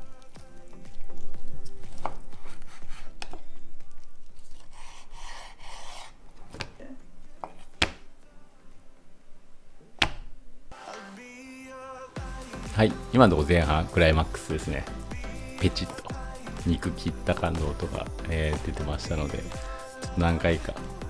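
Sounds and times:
knife sawing through bacon: 4.6s - 6.2s.

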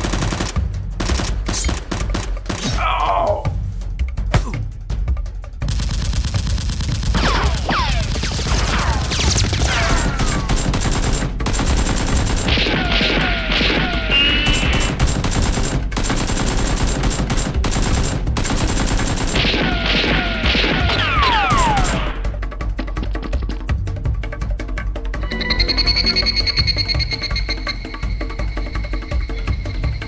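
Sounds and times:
rapid gunfire sound effects: 0.0s - 2.8s, 5.6s - 22.4s
background music: 0.0s - 30.0s.

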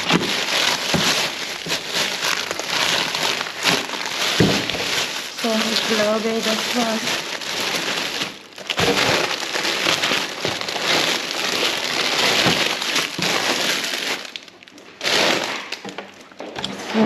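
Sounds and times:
plastic bags crinkling: 0.0s - 17.0s.

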